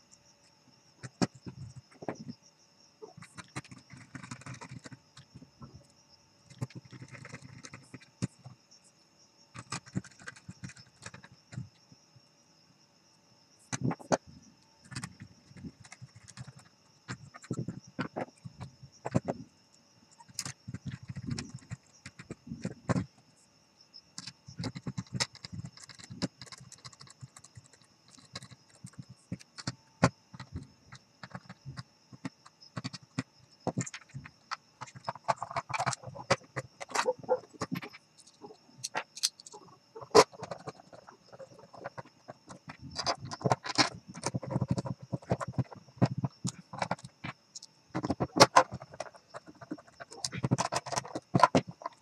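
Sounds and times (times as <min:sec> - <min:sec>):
hard plastic parts clicking: 0:31.2 - 0:52.0.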